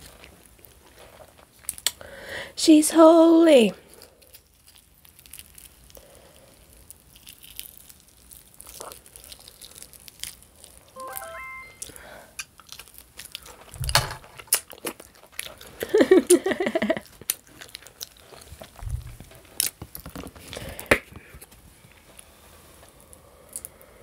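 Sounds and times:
chewing and biting food: 0:03.9 - 0:10.8, 0:12.6 - 0:16.0, 0:17.0 - 0:20.0.

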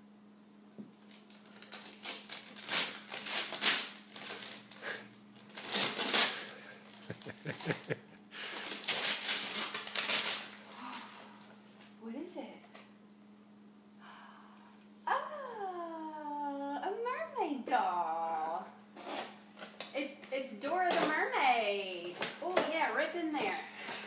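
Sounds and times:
wrapping paper crinkling and tearing: 0:01.0 - 0:11.9.

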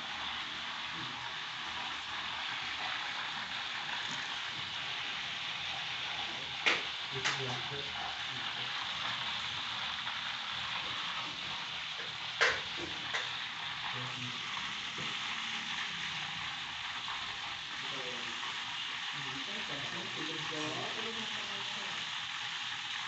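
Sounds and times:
food sizzling in hot oil: 0:00.0 - 0:23.0.

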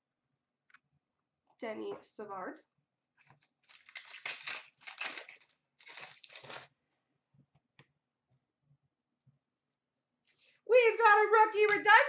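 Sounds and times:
card pack wrapper crinkling: 0:03.4 - 0:06.7.

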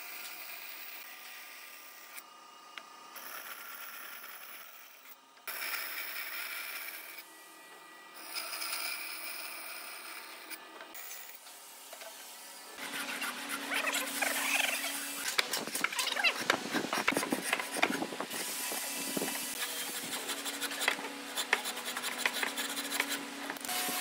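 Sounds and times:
band saw cutting wood: 0:08.2 - 0:24.0.

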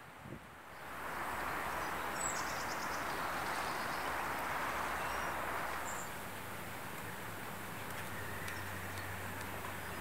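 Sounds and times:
outdoor hiss: 0:00.0 - 0:07.6.

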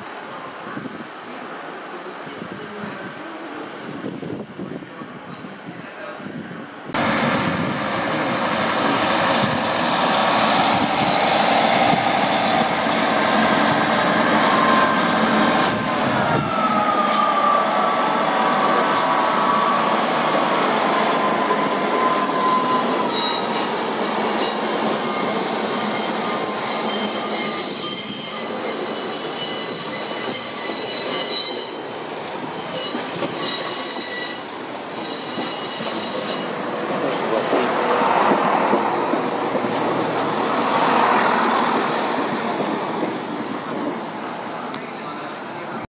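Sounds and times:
train rolling in: 0:06.9 - 0:45.9
train wheels squealing: 0:20.9 - 0:36.7.

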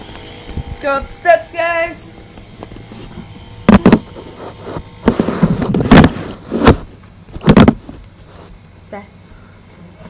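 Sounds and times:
rustling and shuffling: 0:02.4 - 0:08.8.

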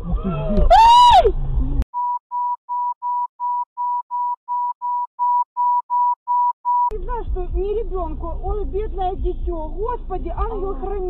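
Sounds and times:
low vehicle rumble: 0:00.0 - 0:01.8, 0:06.9 - 0:11.0
short electronic beeps: 0:02.0 - 0:06.9.

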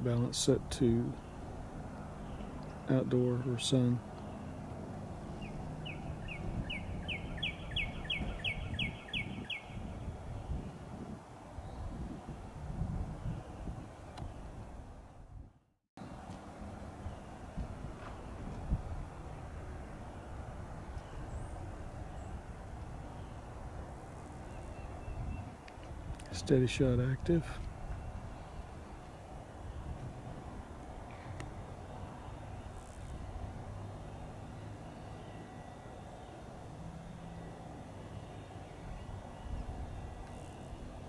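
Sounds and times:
songbird whistling: 0:05.4 - 0:10.0, 0:24.5 - 0:25.5.

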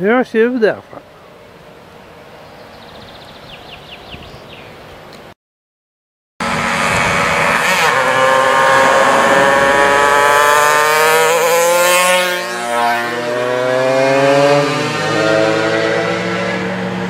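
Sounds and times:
car passing: 0:06.4 - 0:17.0
mopeds buzzing past: 0:06.4 - 0:17.0.

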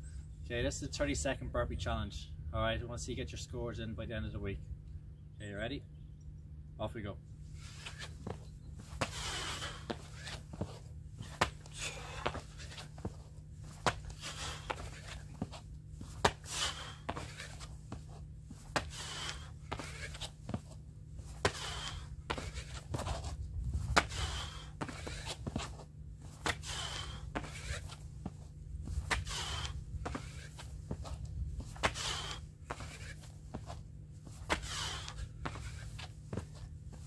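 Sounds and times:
hands and shoes slapping concrete: 0:09.0 - 0:20.7, 0:21.4 - 0:23.2, 0:23.9 - 0:37.0.

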